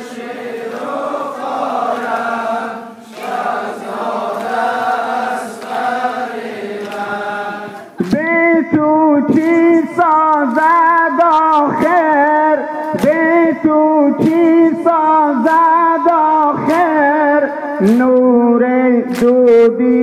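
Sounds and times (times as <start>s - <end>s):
men chanting a lament: 0.0s - 20.0s.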